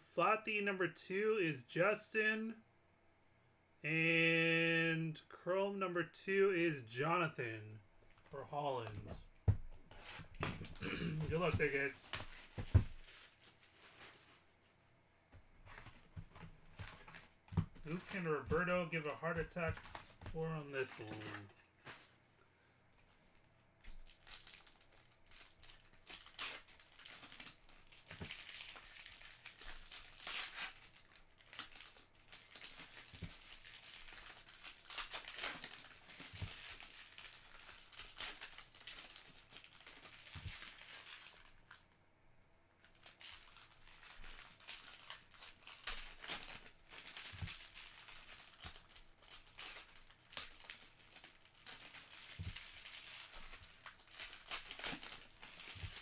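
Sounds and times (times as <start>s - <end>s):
card pack wrappers crinkling and tearing: 9.9s - 14.4s, 15.7s - 22.0s, 23.8s - 41.9s, 42.8s - 56.0s.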